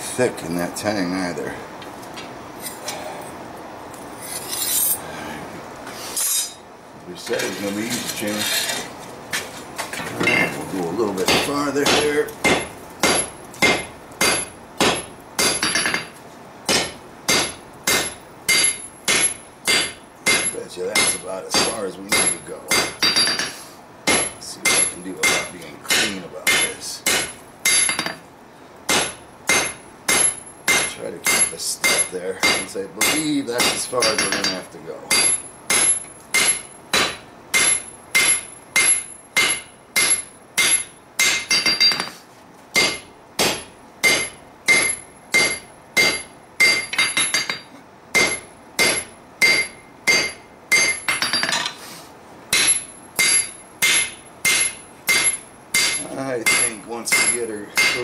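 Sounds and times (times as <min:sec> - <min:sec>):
hammer striking steel on anvil: 0:11.2 - 0:16.1, 0:16.7 - 0:28.2, 0:28.9 - 0:42.2, 0:42.8 - 0:51.7, 0:52.5 - 0:58.0.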